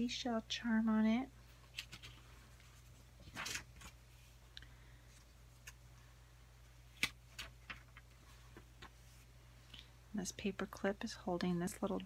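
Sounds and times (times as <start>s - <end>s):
paper pages rustling: 1.6s - 4.4s, 6.9s - 9.3s.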